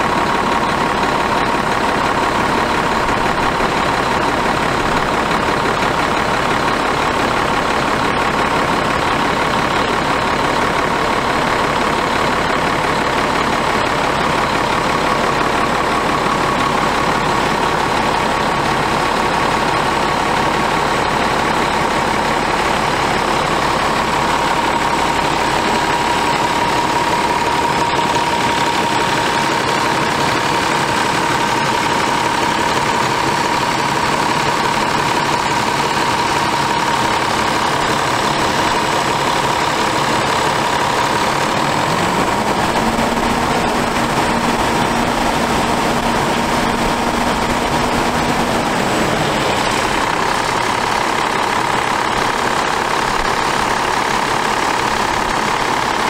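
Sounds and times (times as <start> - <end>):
diesel truck engine idling: 0.0 - 56.0
steady whine: 21.2 - 56.0.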